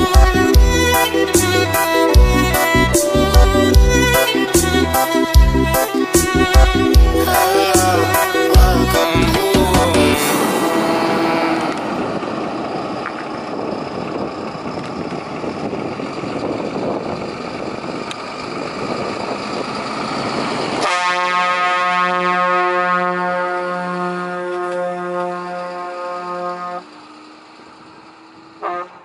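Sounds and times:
truck air horn blaring: 0.0s - 12.4s, 20.8s - 27.0s, 28.6s - 29.0s
truck engine and tyre noise: 0.0s - 29.0s.

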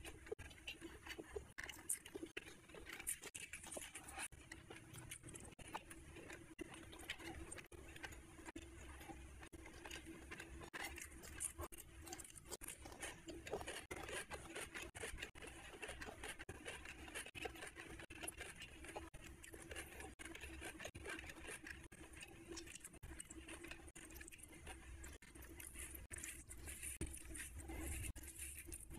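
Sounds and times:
fingers mixing rice wet clicks: 0.0s - 28.9s.

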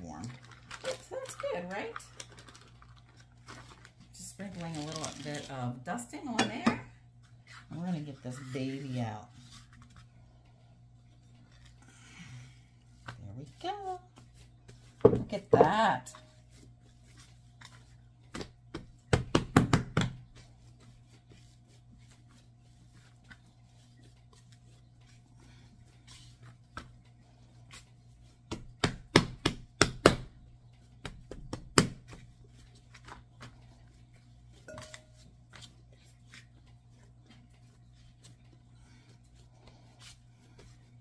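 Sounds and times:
faint steady hum: 0.0s - 41.0s
dough kneading thumps: 12.9s - 41.0s.

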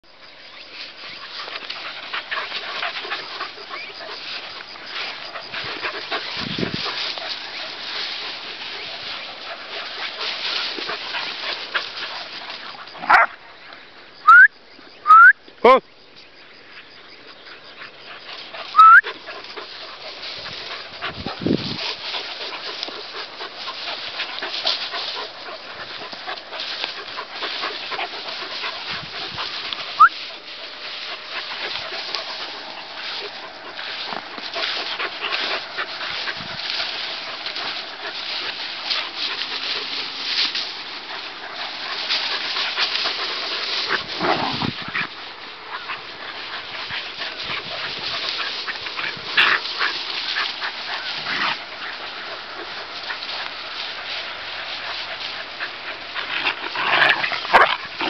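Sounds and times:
dogs scuffling: 0.8s - 13.3s, 18.2s - 58.0s
dog yelping: 13.0s - 13.3s, 18.7s - 19.0s.

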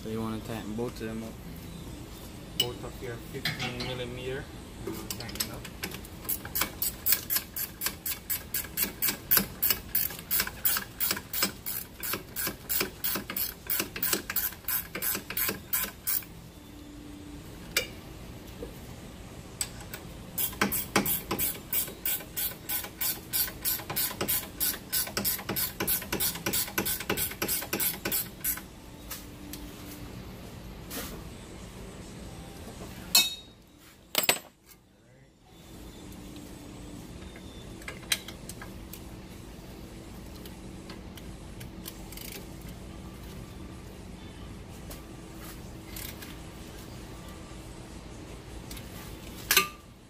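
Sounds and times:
socket ratchet clicking: 6.3s - 16.3s.

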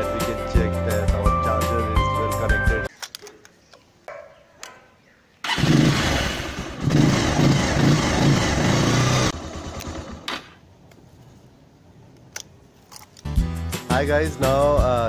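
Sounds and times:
motorcycle engine starting and running: 5.4s - 10.6s.

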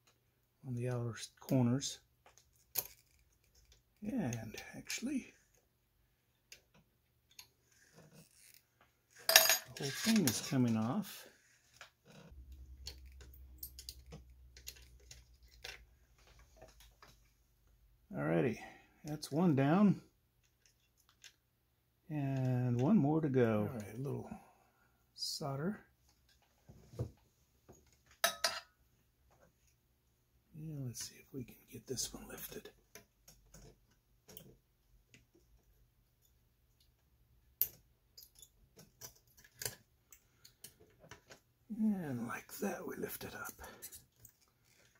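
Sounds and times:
low steady hum: 12.2s - 18.8s.

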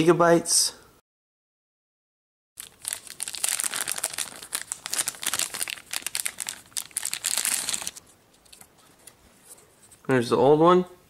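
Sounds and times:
plastic bag crinkling: 2.6s - 8.7s.

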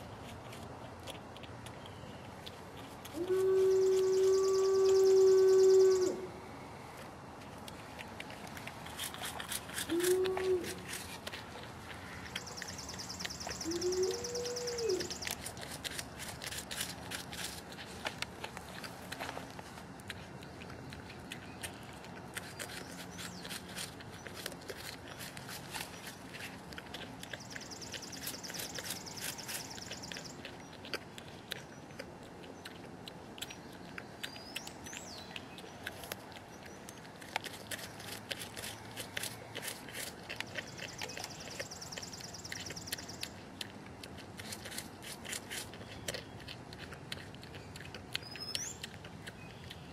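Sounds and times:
porcupine chewing fruit: 0.0s - 49.9s
bird trilling: 3.6s - 6.2s, 12.4s - 15.3s
bird chirp: 3.6s - 6.3s, 12.1s - 15.5s, 27.2s - 30.8s, 33.4s - 39.0s, 40.4s - 43.4s, 47.5s - 49.9s.

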